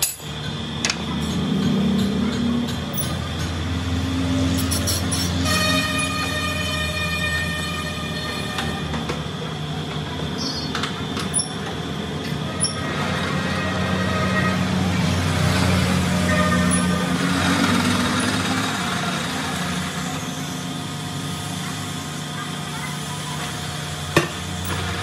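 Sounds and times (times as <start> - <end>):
metal lathe motor hum: 11.0 - 22.3.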